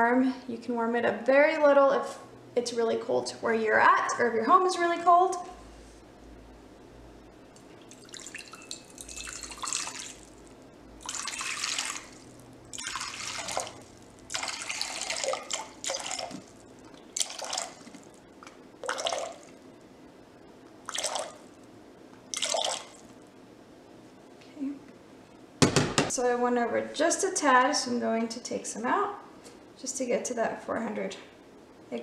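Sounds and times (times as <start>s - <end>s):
water pouring into glass bowl: 7.8s - 18.2s, 18.8s - 19.6s, 20.9s - 21.5s, 22.3s - 23.0s.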